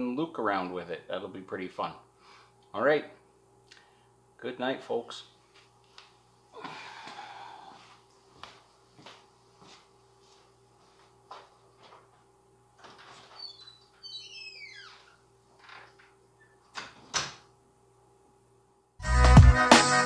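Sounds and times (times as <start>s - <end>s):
faint steady hum: 0.0s - 19.0s
high squeak falling in pitch: 13.4s - 15.2s
loud music: 19.0s - 20.0s.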